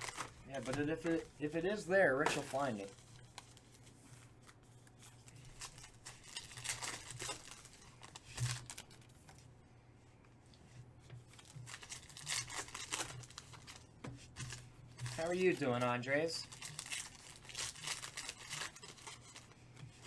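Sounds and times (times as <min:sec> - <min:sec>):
foil packs tearing and crinkling: 0:00.0 - 0:01.6, 0:05.3 - 0:09.1, 0:11.3 - 0:13.9, 0:15.0 - 0:20.0.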